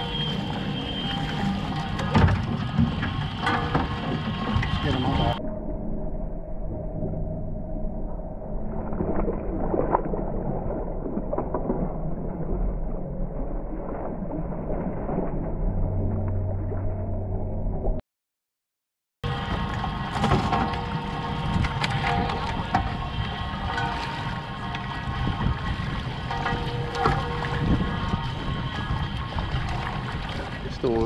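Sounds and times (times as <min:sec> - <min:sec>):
boat motor humming: 0:00.0 - 0:05.9, 0:19.2 - 0:31.0
net splashing through water: 0:19.3 - 0:31.0.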